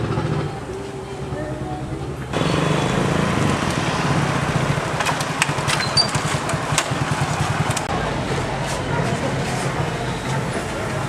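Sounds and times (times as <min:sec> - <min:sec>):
motorcycle engine running: 0:02.3 - 0:11.0.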